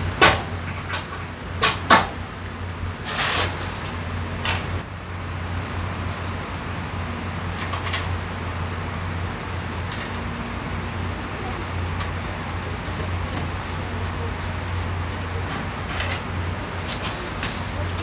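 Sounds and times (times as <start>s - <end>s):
steady low hum: 0.0s - 18.0s
short metal scrape: 3.0s - 3.7s.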